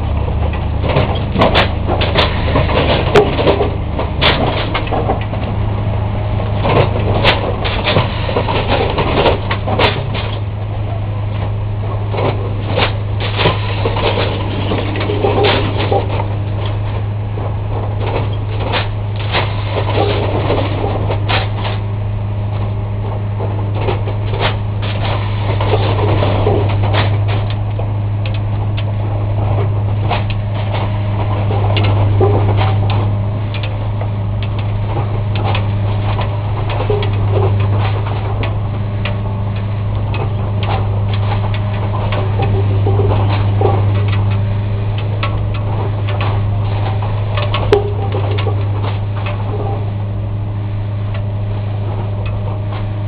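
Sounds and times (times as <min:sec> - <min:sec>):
machine engine drone: 0:00.0 - 0:53.0
metallic clanks and clicks: 0:12.1 - 0:17.0, 0:23.7 - 0:28.9, 0:29.5 - 0:49.9.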